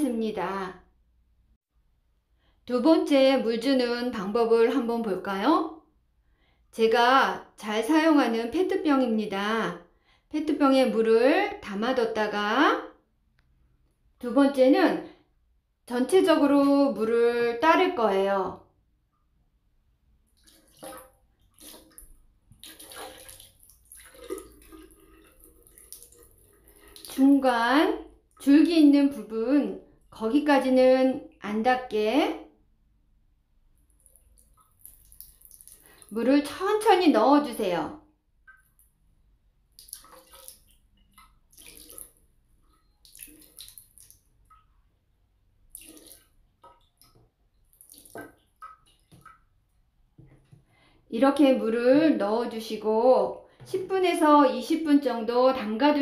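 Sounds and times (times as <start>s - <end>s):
water pouring into glass vase: 20.4s - 27.5s, 39.8s - 44.7s, 45.7s - 49.1s.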